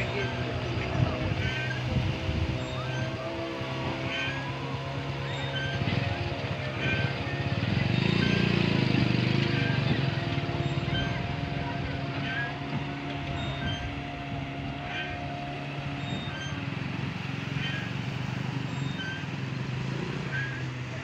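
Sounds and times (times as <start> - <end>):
wind noise: 0.0 - 2.8
motor hum and whine: 0.0 - 21.0.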